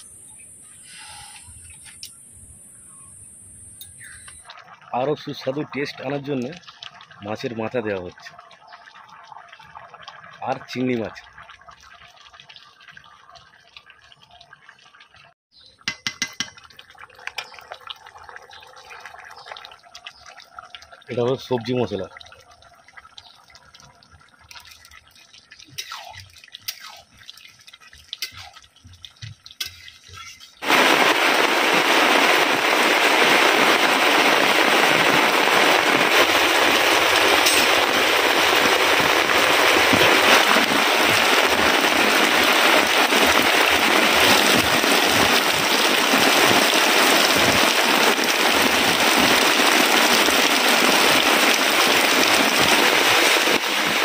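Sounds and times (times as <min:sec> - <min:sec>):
faint clicks and drips: 0:03.8 - 0:30.6
heavy rain downpour: 0:30.6 - 0:54.0.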